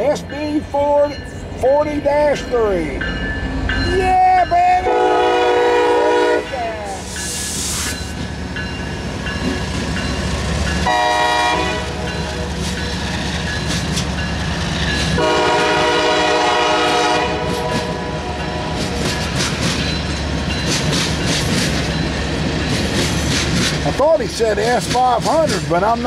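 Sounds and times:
freight train rumbling over rails: 0:00.0 - 0:26.0
locomotive air horn: 0:04.8 - 0:06.6, 0:10.8 - 0:12.5, 0:15.2 - 0:18.4.

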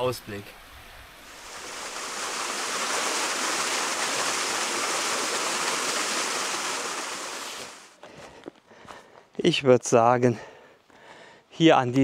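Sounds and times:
waterfall rushing: 0:01.3 - 0:08.0.

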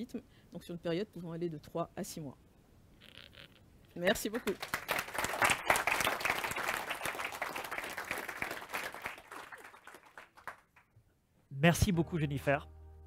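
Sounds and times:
audience applauding: 0:04.4 - 0:10.9.

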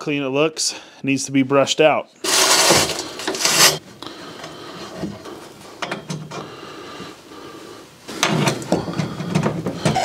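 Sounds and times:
pipe scraping into fitting: 0:02.2 - 0:03.9, 0:08.2 - 0:10.0.

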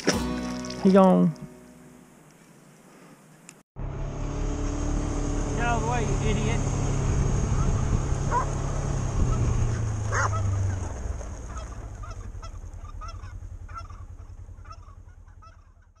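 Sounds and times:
engine humming: 0:03.8 - 0:16.0
geese honking: 0:07.5 - 0:08.6, 0:09.2 - 0:16.0.

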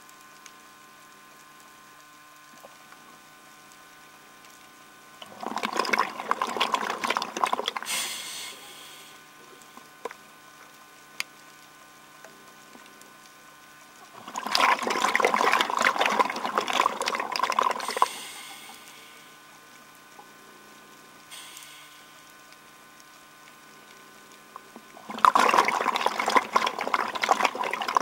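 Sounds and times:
diver's bubbles gurgling: 0:05.1 - 0:08.9, 0:12.2 - 0:20.4, 0:23.1 - 0:28.0.

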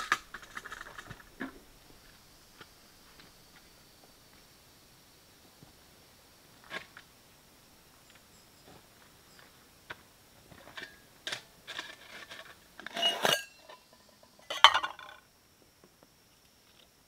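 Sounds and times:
metal cookware clinking: 0:12.8 - 0:15.2.

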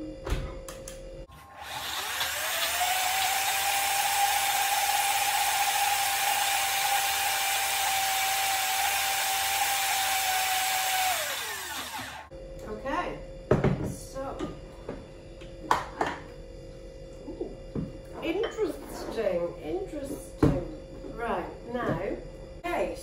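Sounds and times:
blender motor whining: 0:01.3 - 0:12.3.

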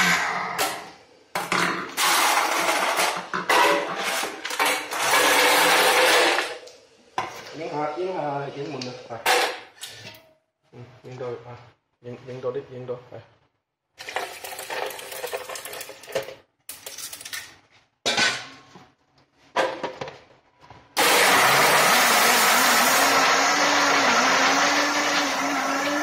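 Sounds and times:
blender motor crushing ice: 0:04.9 - 0:06.5, 0:21.0 - 0:26.0.

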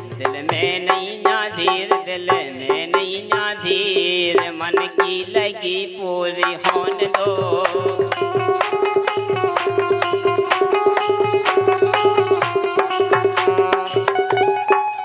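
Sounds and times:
person singing: 0:00.0 - 0:14.9
percussion beat: 0:00.0 - 0:15.0
harmonium playing: 0:06.7 - 0:15.0.

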